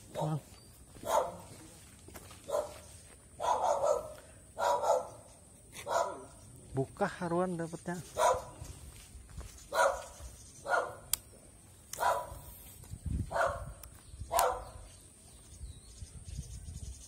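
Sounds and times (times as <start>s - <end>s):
dog barking: 1.0s - 1.6s, 2.4s - 6.4s, 8.2s - 8.6s, 9.7s - 11.1s, 12.0s - 12.4s, 13.3s - 14.8s.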